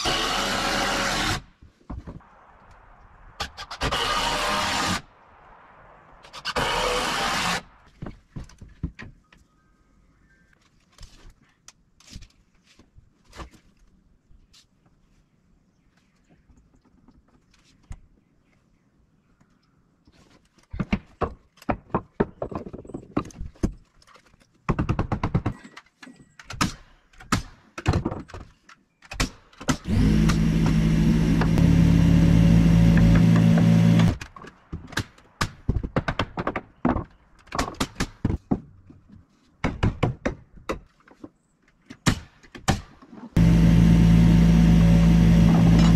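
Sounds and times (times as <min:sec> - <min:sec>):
loud power tool running: 0:29.9 - 0:34.2, 0:43.4 - 0:45.9.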